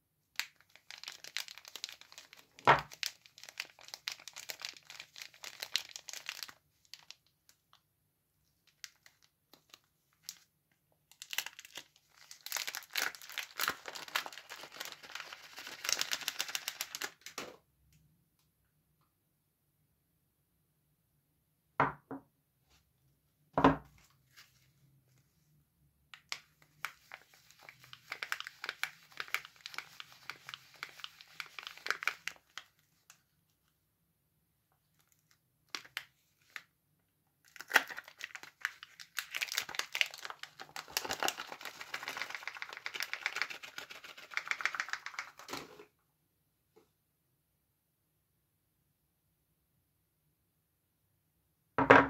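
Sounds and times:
paper wrapper crinkling and tearing: 0.4 - 7.6, 8.7 - 10.4, 11.1 - 17.5, 26.2 - 33.2, 34.9 - 36.6, 37.4 - 45.8.

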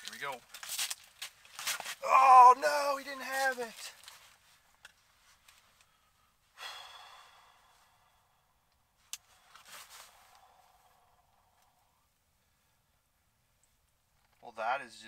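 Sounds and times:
short breath: 5.8 - 12.9
man sighing: 6.6 - 8.4.

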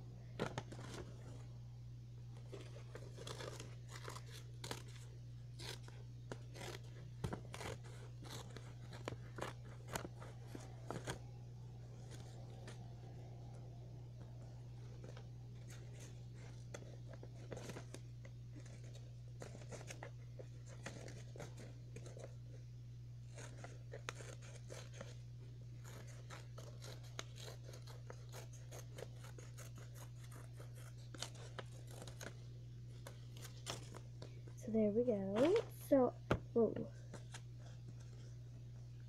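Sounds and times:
steady low hum: 0.0 - 39.0
scissors snipping paper: 2.5 - 11.2, 14.9 - 22.4, 23.3 - 25.2, 25.8 - 34.0.

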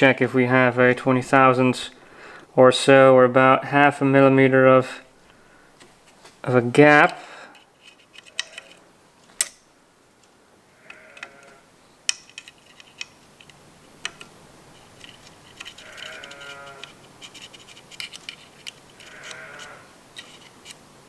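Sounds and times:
light metal clicks and taps: 12.1 - 14.3.

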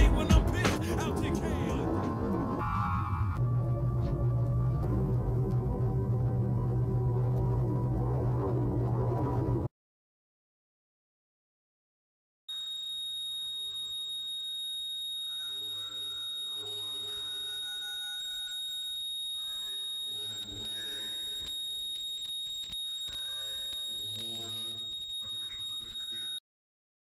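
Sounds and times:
high-pitched electronic whine: 1.2 - 9.7, 12.5 - 26.4.

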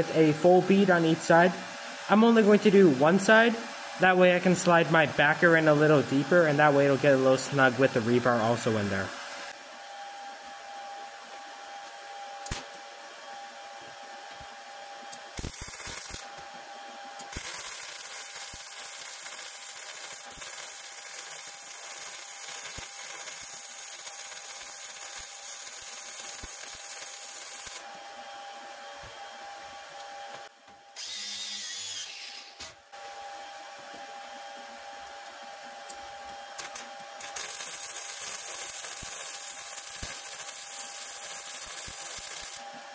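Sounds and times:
welding arc crackling hiss: 15.2 - 16.5, 17.2 - 27.9, 36.6 - 42.7.

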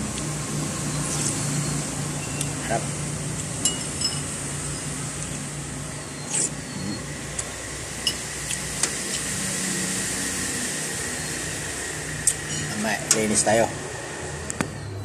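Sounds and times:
air conditioning hum: 0.0 - 15.0
road traffic hum: 0.0 - 15.0
metal spoon clinking on bowl: 3.6 - 4.3.

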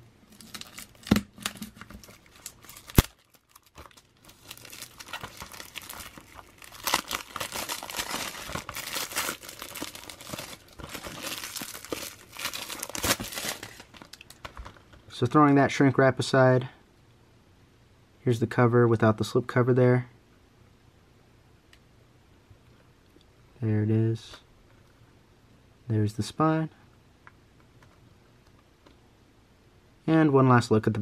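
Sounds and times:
shrink wrap tearing: 0.3 - 14.5
plastic film crinkling: 0.3 - 14.9.

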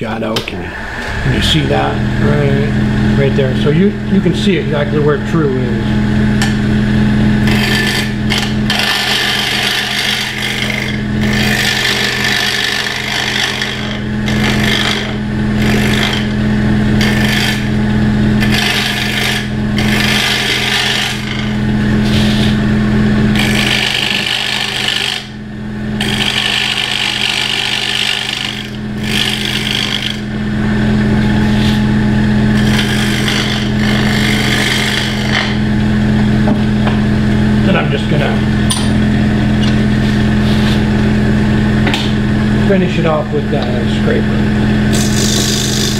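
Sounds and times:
wood lathe motor hum: 0.4 - 45.9
scraper hissing on spinning wood: 22.0 - 22.6, 44.9 - 45.9.

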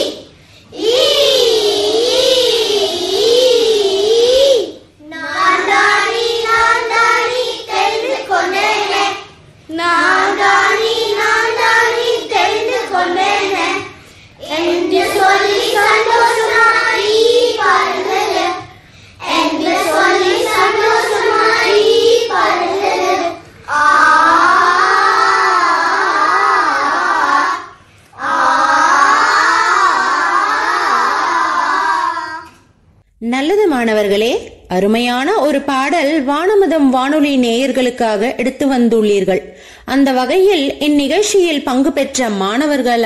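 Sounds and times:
young children singing: 0.0 - 32.8.

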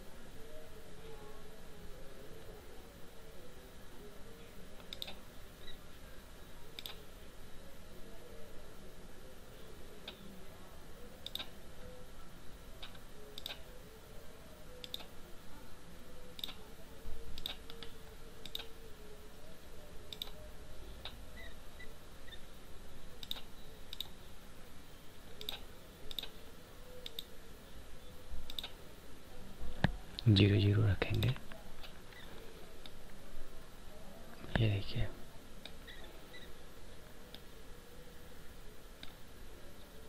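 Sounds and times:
faint hum: 0.0 - 40.0
computer mouse clicks: 4.8 - 5.2, 6.7 - 7.0, 11.2 - 11.6, 12.8 - 13.7, 14.8 - 15.2, 16.4 - 16.6, 17.4 - 18.8, 20.1 - 20.4, 23.2 - 24.2, 25.4 - 26.4, 27.0 - 27.3, 28.5 - 28.8, 39.0 - 39.2.

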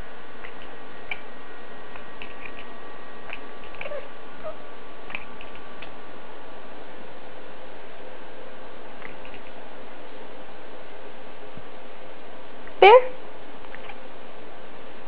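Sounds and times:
cat chattering clicks: 0.4 - 1.2, 2.0 - 2.7.

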